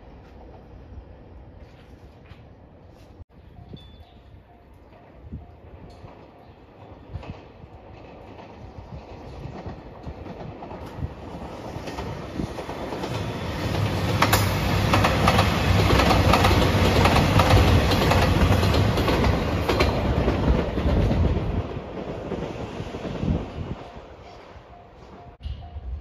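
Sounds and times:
wheels clicking over rail joints: 5.8 - 22.6.

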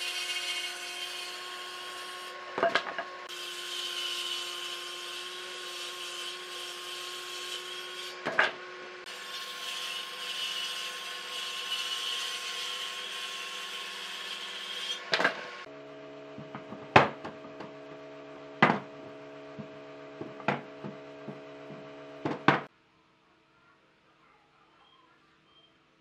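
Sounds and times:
steady low hum: 15.6 - 22.7
wooden knocks: 16.4 - 17.8, 19.6 - 22.7.

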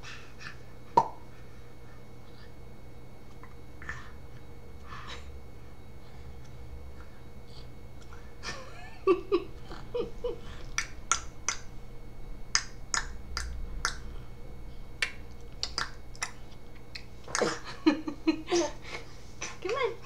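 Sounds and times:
tongue clicking: 15.0 - 17.4.

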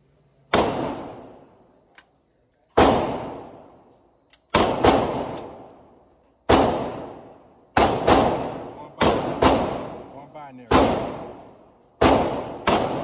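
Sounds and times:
rifle shots: 0.5 - 1.4, 2.8 - 3.6, 4.5 - 5.7, 6.5 - 13.0.

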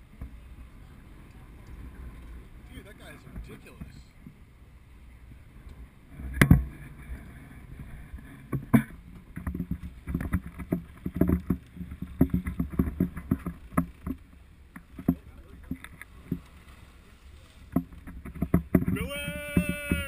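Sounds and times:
sea noise: 0.0 - 20.0
wind: 0.0 - 20.0
low thumps and knocks: 6.3 - 6.8, 8.4 - 16.6, 17.7 - 20.0.

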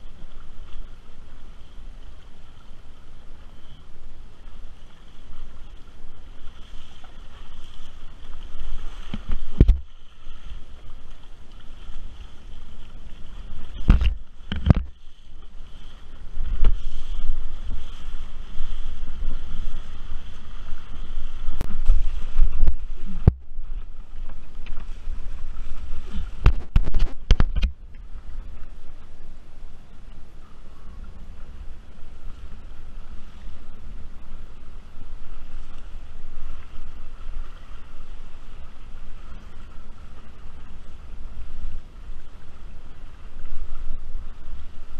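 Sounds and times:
wing slapping water: 4.4 - 28.6
wind buffeting microphone: 7.5 - 40.2.

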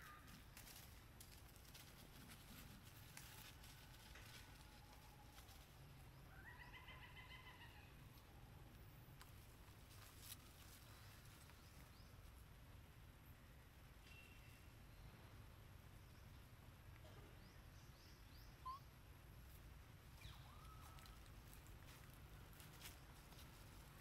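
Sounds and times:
faint animal call: 18.6 - 18.9.

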